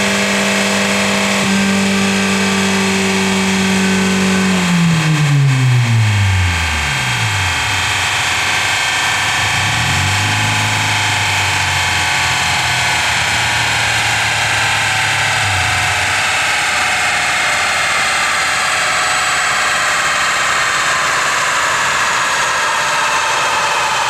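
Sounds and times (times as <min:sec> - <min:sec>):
engine droning on dyno: 0:00.0 - 0:24.0
low hum: 0:02.6 - 0:17.9.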